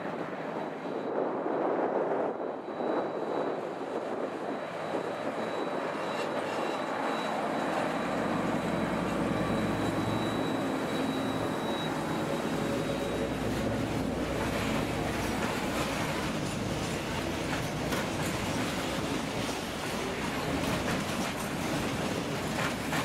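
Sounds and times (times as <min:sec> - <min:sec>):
diesel locomotive engine: 0:00.0 - 0:23.0
freight wagons rolling: 0:05.6 - 0:23.0.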